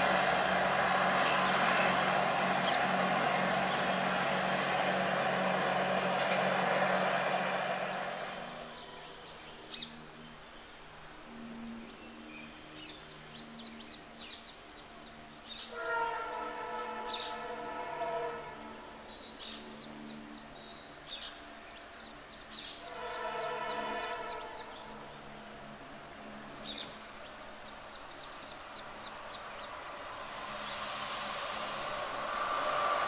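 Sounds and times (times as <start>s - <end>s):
locomotive engine hum: 0.0s - 33.0s
birds chirping: 1.2s - 32.3s
locomotive horn: 15.5s - 20.2s, 22.6s - 27.2s.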